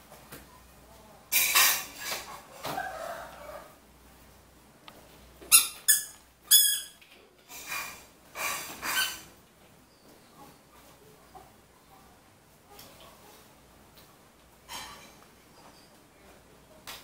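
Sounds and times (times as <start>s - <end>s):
plastic toy squeaks: 5.5s - 7.0s.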